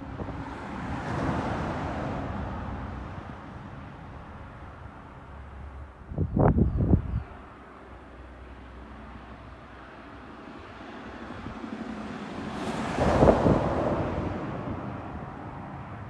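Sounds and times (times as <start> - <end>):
vehicle passing by: 10.5 - 16.0.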